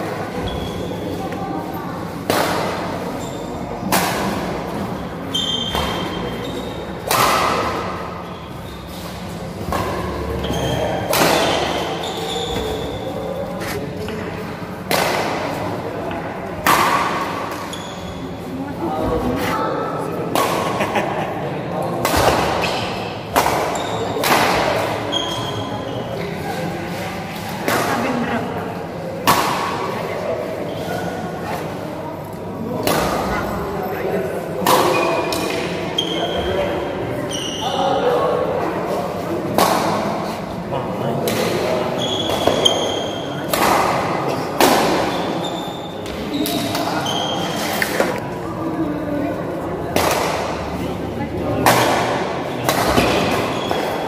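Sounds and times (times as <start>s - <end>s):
murmur of voices echoing: 0.0s - 54.0s
sneakers squeaking on court: 0.4s - 1.2s, 3.1s - 3.7s, 4.9s - 6.9s, 8.2s - 13.8s, 17.6s - 18.4s, 25.0s - 26.2s, 37.3s - 37.9s, 42.0s - 43.4s, 45.1s - 47.8s
rackets hitting shuttlecock: 2.2s - 3.1s, 3.8s - 13.1s, 13.7s - 17.8s, 20.2s - 20.8s, 22.0s - 25.6s, 29.2s - 30.0s, 32.8s - 33.3s, 34.6s - 36.5s, 39.4s - 40.2s, 41.2s - 48.2s, 49.9s - 50.8s, 51.6s - 54.0s.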